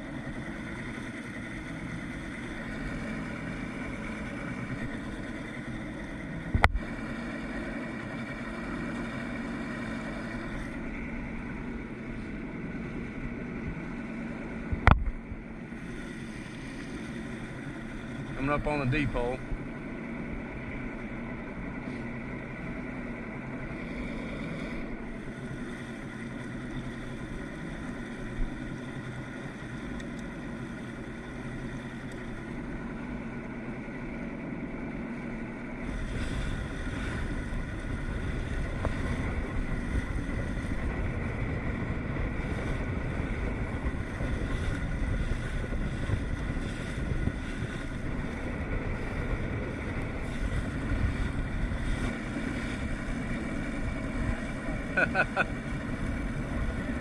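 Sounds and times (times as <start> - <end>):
outboard motor running steadily: 0.0 - 57.0
wind buffeting microphone: 35.7 - 57.0.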